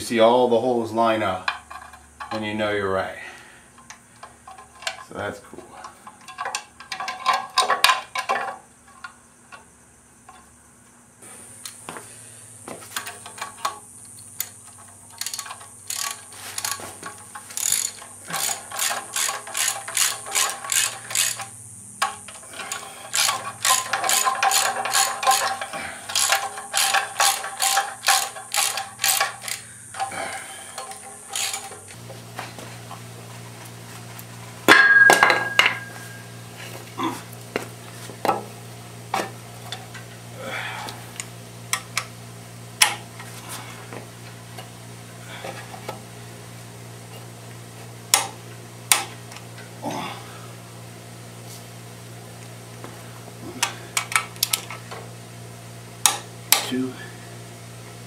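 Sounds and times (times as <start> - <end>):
ratchet wrench clicking: 13.0 - 32.0, 53.6 - 54.9
metal clatter: 34.7 - 36.3.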